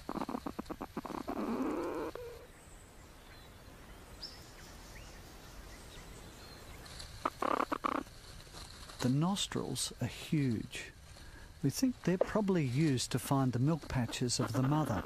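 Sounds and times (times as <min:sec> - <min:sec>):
rough rustling with clicks: 0:06.8 - 0:15.0.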